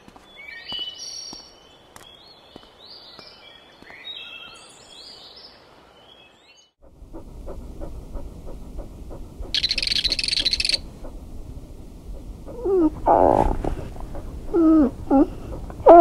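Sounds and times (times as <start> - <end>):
dog whimpering and woofing: 7.1 - 11.2, 12.1 - 16.0
dog yelp: 9.6 - 10.8.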